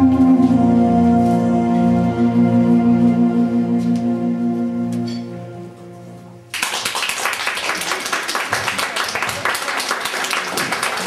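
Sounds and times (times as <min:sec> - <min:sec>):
audience applause: 0:06.5 - 0:11.0.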